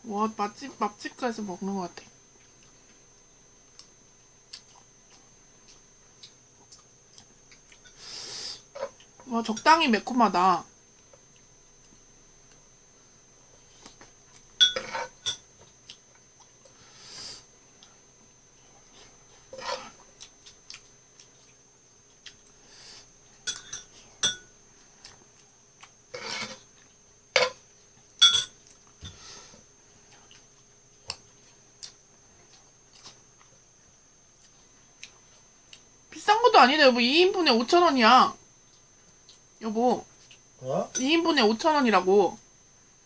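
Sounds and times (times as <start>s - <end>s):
metal spoon clinking on a pan: 14.6s - 15.4s.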